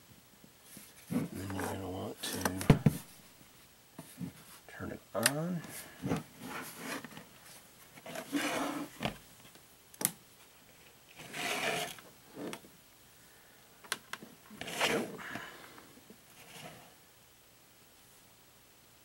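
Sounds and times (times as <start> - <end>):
plastic rubbing and scraping: 0.8 - 3.1, 6.0 - 7.3, 7.9 - 9.2, 11.1 - 12.6, 14.5 - 15.2, 16.4 - 16.9.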